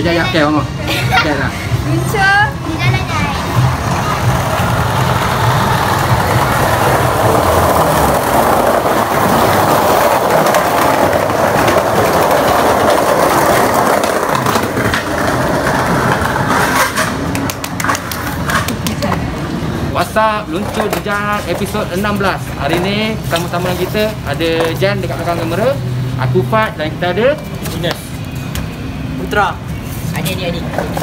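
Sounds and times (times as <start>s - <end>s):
skateboard wheels rolling on tiles: 2.6s - 26.5s, 29.8s - 31.0s
skateboard clacks: 3.7s - 19.5s.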